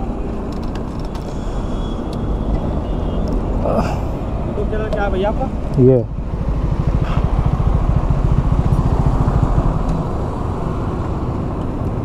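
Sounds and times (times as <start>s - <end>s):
motorcycle engine idling: 6.1s - 9.8s.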